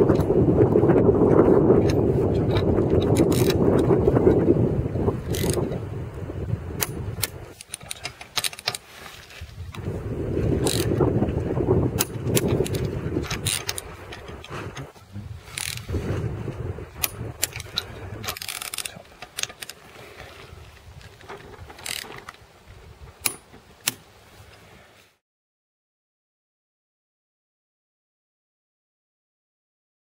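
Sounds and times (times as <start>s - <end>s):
ratchet wrench clicking: 3.1s - 3.6s, 5.3s - 5.6s, 10.6s - 10.9s
low rumble: 9.6s - 18.3s.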